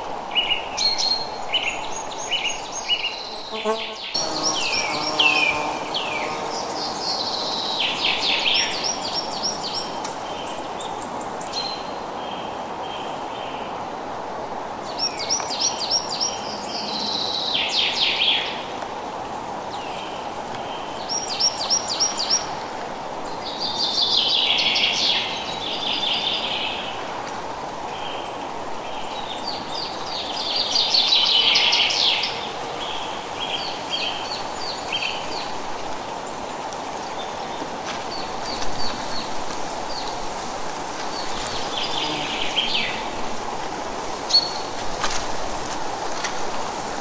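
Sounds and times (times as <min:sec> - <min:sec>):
wind in the trees: 0:00.0 - 0:47.0
songbirds singing: 0:00.3 - 0:13.8, 0:19.7 - 0:22.6, 0:27.9 - 0:40.2, 0:41.0 - 0:43.2, 0:44.3 - 0:44.7.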